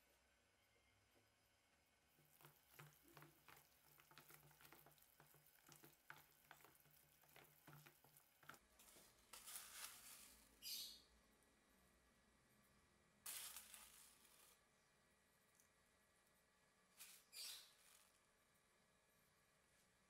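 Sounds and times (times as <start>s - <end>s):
hand kneading wet filling: 2.1s - 10.1s.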